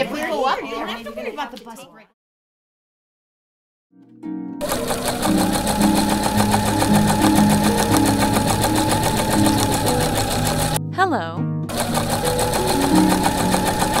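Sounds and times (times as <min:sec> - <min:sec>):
background music melody: 0:03.9 - 0:14.0
sewing machine stitching: 0:04.6 - 0:10.8, 0:11.7 - 0:14.0.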